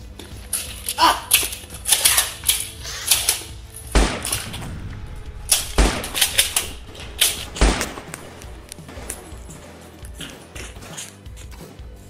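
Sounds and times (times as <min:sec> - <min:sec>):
heavy low thump: 0:03.8 - 0:09.6.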